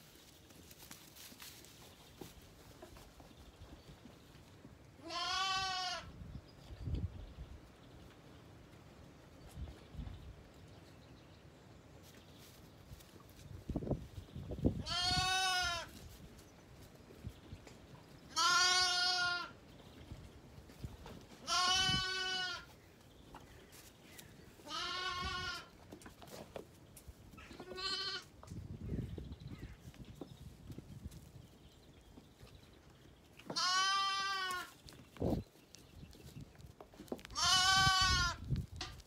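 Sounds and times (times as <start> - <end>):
lambs bleating: 5.0 - 6.1, 14.8 - 15.9, 18.3 - 19.5, 21.4 - 22.7, 24.6 - 25.7, 27.5 - 28.3, 33.5 - 34.7, 37.3 - 38.4.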